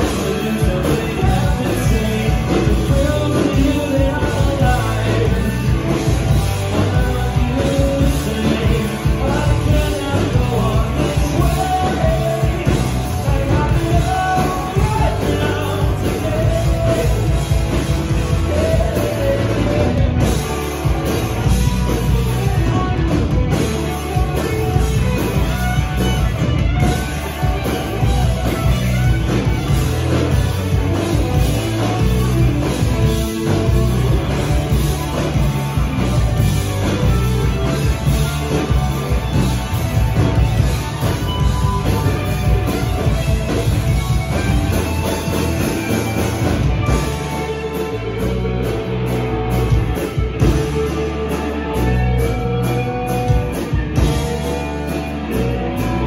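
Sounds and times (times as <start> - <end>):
man singing: 0.0 - 20.7
rock band playing live: 0.0 - 56.0.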